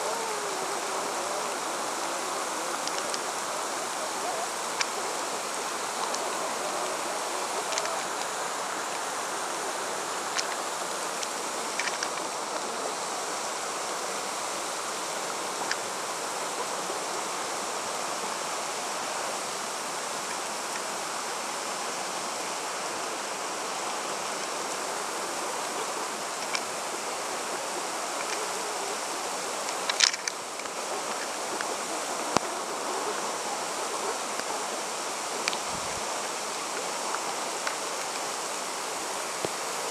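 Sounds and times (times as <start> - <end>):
running water: 0.0 - 39.9.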